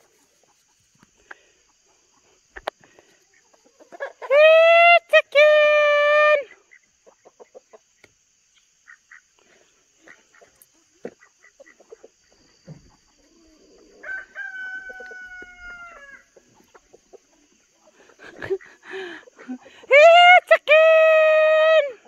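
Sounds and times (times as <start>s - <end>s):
chickens clucking softly: 0.0s - 4.4s, 6.4s - 19.7s
rooster crowing: 13.9s - 16.3s.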